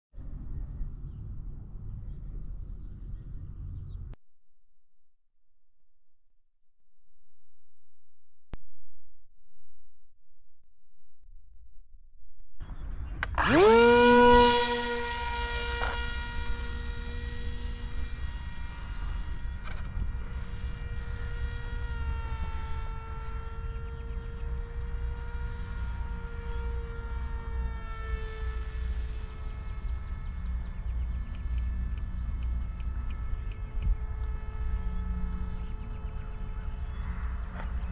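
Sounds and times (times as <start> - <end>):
model plane electric motor whine: 12.7 - 37.9.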